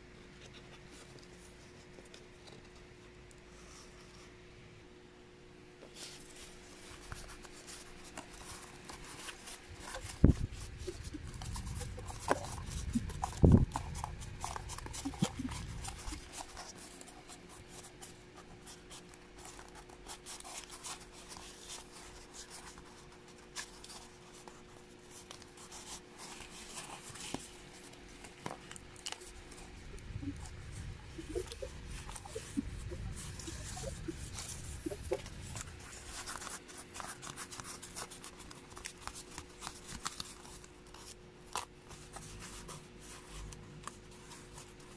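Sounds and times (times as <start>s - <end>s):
hands scraping cardboard: 31.1s - 43.5s.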